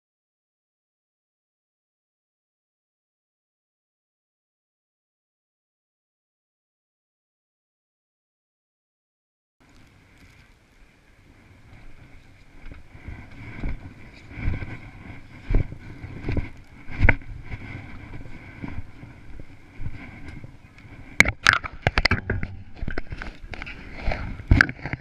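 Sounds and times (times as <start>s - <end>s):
footsteps in snow: 11.4s - 21.2s
gloves rubbing on microphone: 11.7s - 21.2s.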